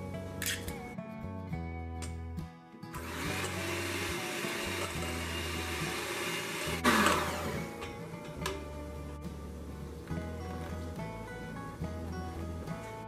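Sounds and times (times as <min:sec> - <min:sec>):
background music: 0:00.0 - 0:13.0
electric hand mixer whisking: 0:03.0 - 0:08.0.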